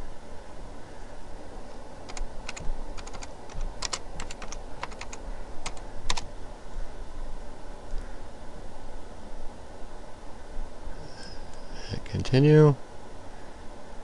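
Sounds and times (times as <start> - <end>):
keyboard keys clicking: 2.1 - 6.2.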